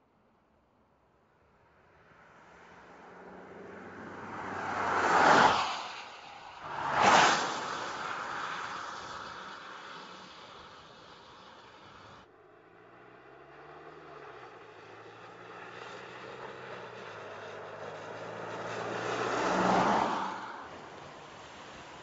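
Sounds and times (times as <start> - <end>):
car engine passing: 2.2 - 12.2, 13.3 - 22.0
tyres hissing on wet road: 4.0 - 12.2, 17.4 - 22.0.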